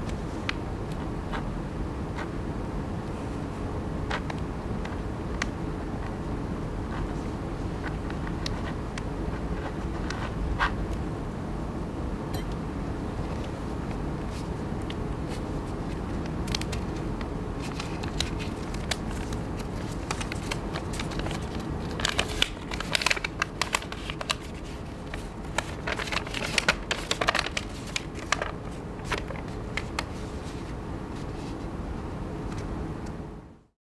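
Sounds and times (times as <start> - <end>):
steady low hum: 0.0 - 33.7
paper rustling and crinkling: 15.2 - 31.7.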